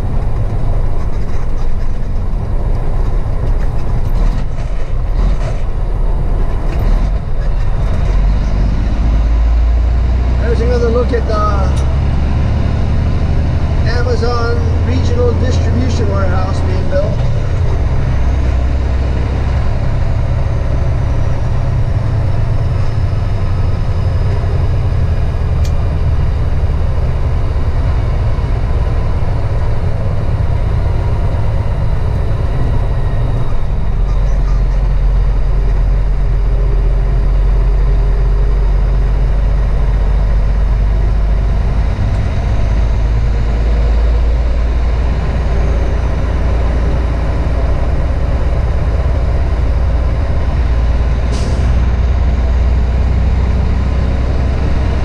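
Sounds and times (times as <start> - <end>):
road noise: 0.0 - 55.0
truck engine rumble: 0.0 - 55.0.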